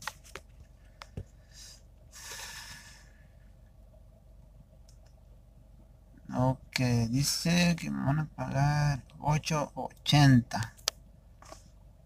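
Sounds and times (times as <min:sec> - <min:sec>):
small clicks: 0:04.8 - 0:05.2.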